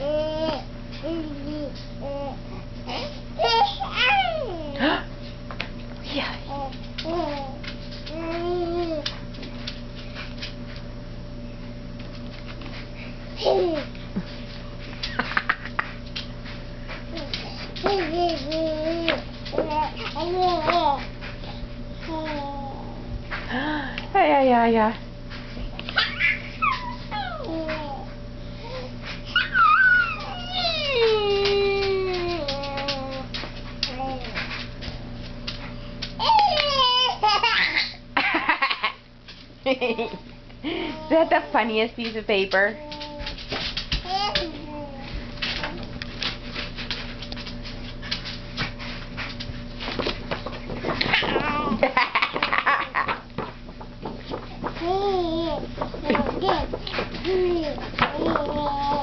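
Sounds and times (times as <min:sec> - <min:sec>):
baby squealing and cooing: 0:26.0 - 0:28.0, 0:29.3 - 0:31.0
stiff sheet tapping and rustling: 0:42.9 - 0:59.0.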